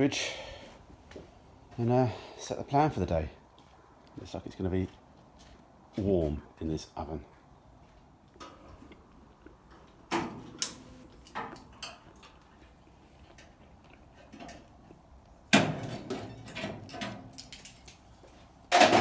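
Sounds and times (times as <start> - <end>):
metallic clanks and knocks: 15.5 - 17.8, 18.7 - 19.0
metal clattering and rattling: 15.6 - 18.0, 18.7 - 19.0.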